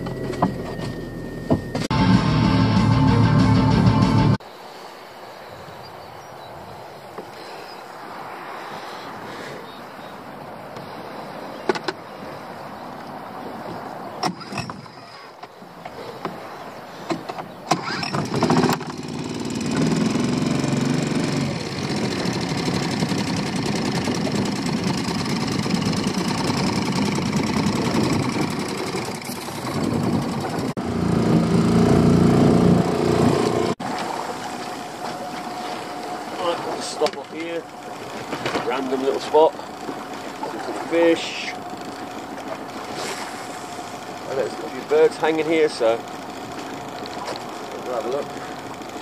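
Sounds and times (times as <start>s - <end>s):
outboard motor running: 0.0s - 3.7s, 14.1s - 49.0s.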